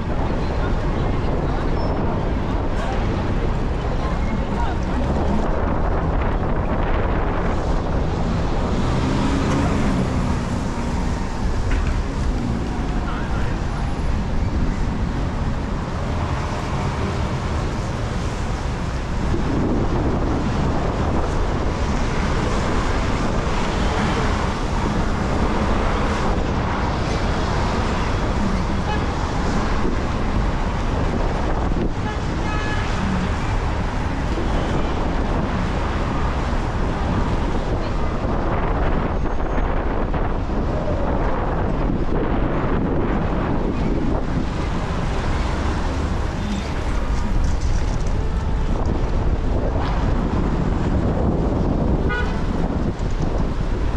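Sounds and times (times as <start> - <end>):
traffic passing: 0.0 - 53.9
wind buffeting microphone: 0.0 - 53.9.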